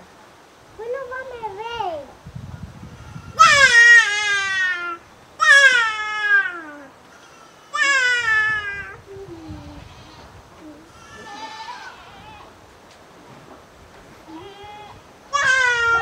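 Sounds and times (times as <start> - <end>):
young goat bleating: 3.0 - 12.6, 14.2 - 16.0.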